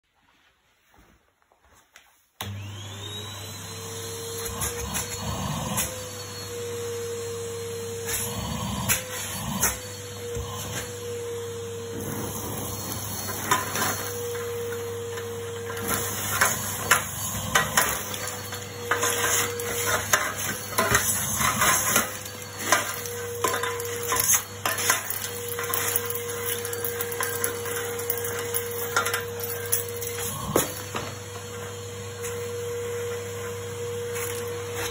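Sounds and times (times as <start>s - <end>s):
vacuum cleaner whining: 2.4s - 34.9s.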